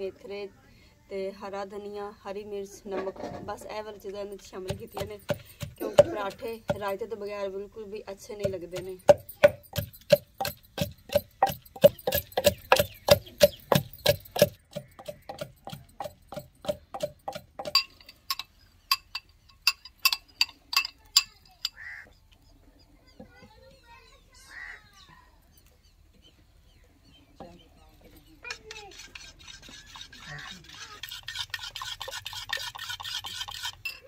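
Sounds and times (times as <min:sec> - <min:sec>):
wooden pestle pounding in mortar: 0:04.6 - 0:06.9, 0:08.4 - 0:18.4.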